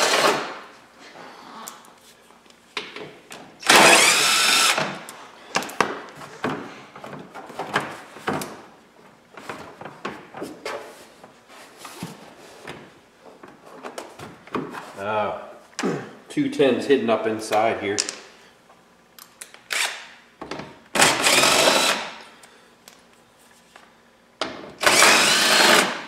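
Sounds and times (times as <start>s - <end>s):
cordless drill running: 3.6s - 4.9s, 21.0s - 22.1s, 24.8s - 26.0s.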